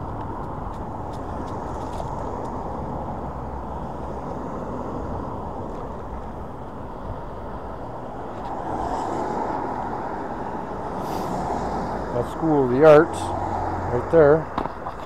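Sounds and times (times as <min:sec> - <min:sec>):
tyres on road: 0:00.0 - 0:15.0.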